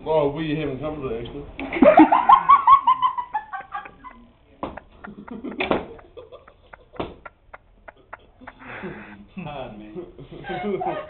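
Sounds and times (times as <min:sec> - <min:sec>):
person laughing high-pitched: 0:10.4 - 0:11.0.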